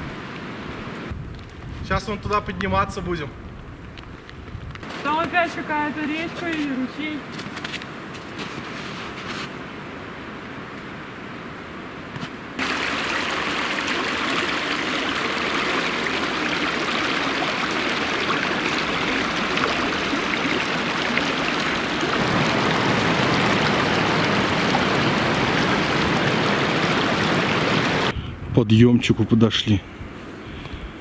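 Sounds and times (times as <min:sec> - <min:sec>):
forest stream running: 0:04.8 - 0:28.1.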